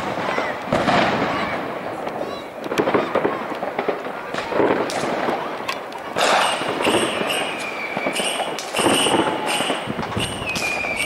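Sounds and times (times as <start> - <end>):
fireworks bangs and crackling: 0.0 - 11.0
falling firework whistle: 6.2 - 11.0.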